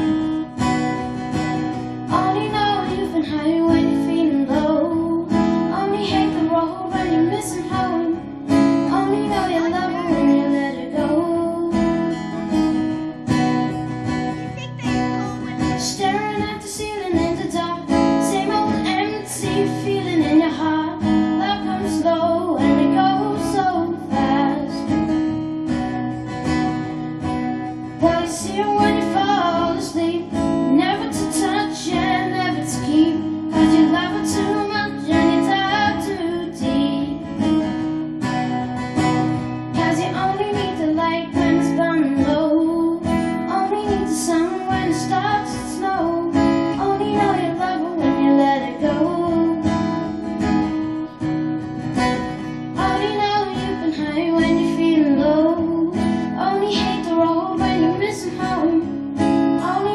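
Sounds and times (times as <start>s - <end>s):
acoustic guitar strumming: 0.0s - 59.9s
boy singing: 2.1s - 12.0s, 14.5s - 24.9s, 28.0s - 37.6s, 39.7s - 49.7s, 52.8s - 58.9s, 59.6s - 59.9s.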